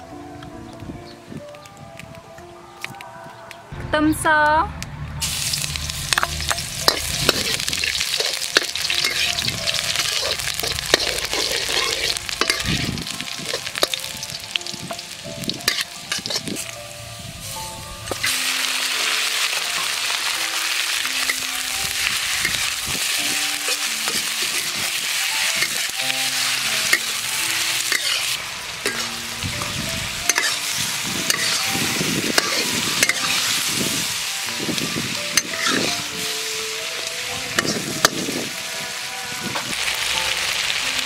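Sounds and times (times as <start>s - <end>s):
metal spatula scraping wok: 5.2s - 16.7s, 21.1s - 29.3s, 30.3s - 34.3s, 35.3s - 36.4s
meat sizzling in hot oil: 5.2s - 41.0s.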